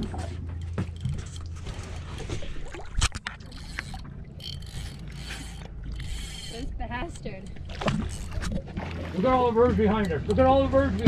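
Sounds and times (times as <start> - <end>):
boat engine running: 0.0 - 11.0
water noise: 0.0 - 11.0
wind: 0.0 - 11.0.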